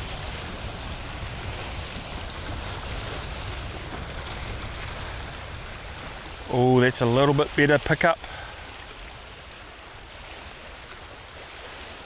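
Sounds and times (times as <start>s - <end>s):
wind rumble on microphone: 0.0s - 8.0s
waves breaking against rocks: 0.0s - 12.0s.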